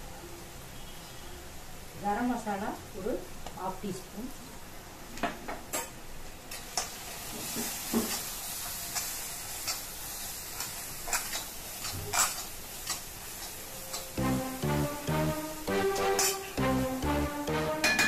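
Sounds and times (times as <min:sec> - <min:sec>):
vegetables sizzling in a pan: 0:00.0 - 0:17.8
metal spatula scraping: 0:10.6 - 0:14.2.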